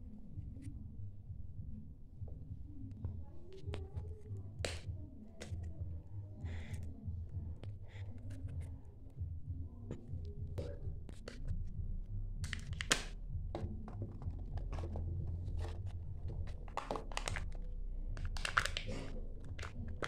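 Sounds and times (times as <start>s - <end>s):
low steady hum: 0.0s - 20.0s
plastic egg and wrapper crackling: 12.4s - 13.1s, 14.5s - 17.6s, 18.2s - 20.0s
wrapper crinkling and tearing: 18.2s - 19.7s.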